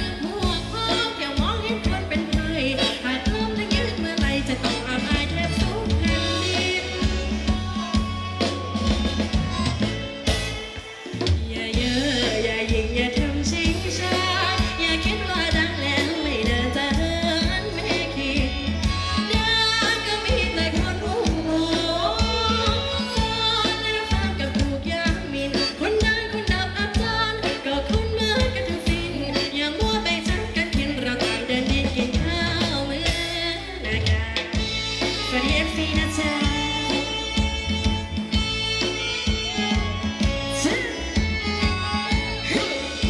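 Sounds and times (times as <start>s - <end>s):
live band dance music: 0.0s - 43.0s
person singing: 35.2s - 37.7s.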